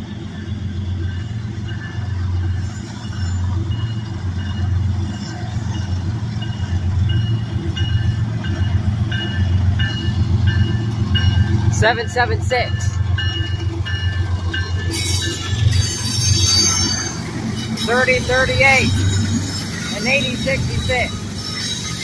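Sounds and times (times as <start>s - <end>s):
diesel locomotive rumble: 0.0s - 22.0s
high ringing bell: 6.4s - 22.0s.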